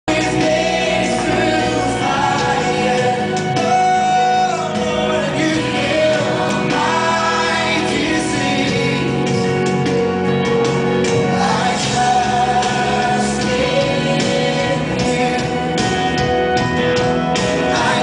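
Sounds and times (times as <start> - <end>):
person singing: 0.1 - 9.6, 17.5 - 18.0
instrumental backing: 0.1 - 18.0.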